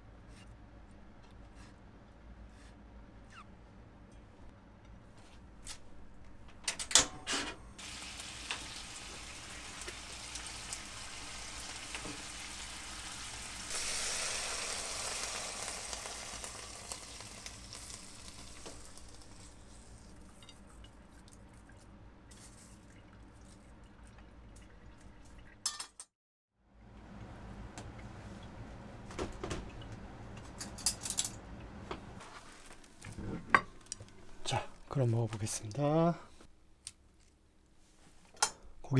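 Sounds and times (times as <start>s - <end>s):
onion sizzling in a frying pan: 7.8s - 20.1s.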